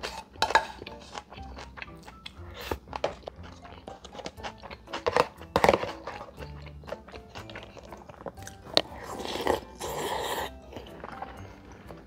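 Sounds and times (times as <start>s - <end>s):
chewing: 0.0s - 12.0s
slurping: 0.0s - 12.0s.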